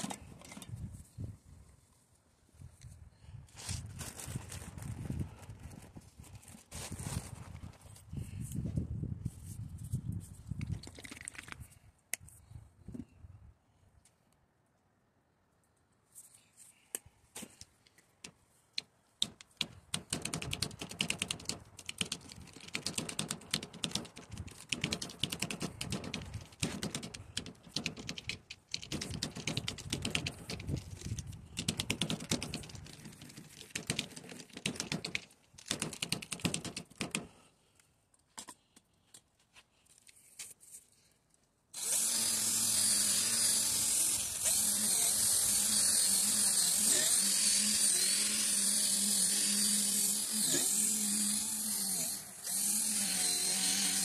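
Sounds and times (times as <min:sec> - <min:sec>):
cordless drill sanding: 0:41.8 - 0:54.0.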